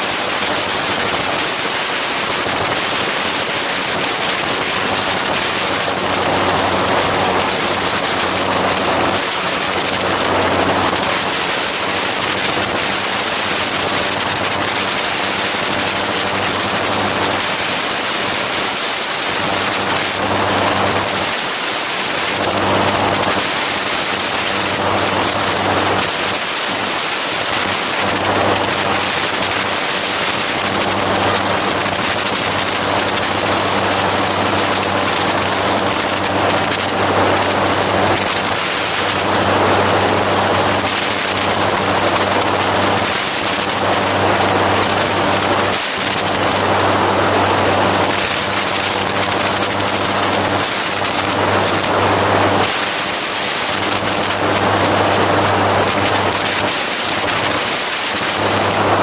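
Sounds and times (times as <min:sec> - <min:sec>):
aircraft engine and propeller drone: 0:00.0 - 0:59.0.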